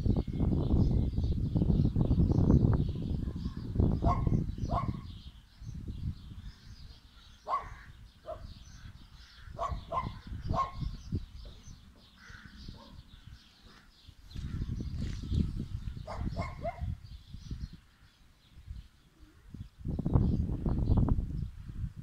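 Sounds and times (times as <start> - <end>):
distant animal calls: 7.2 - 10.9, 11.9 - 14.7.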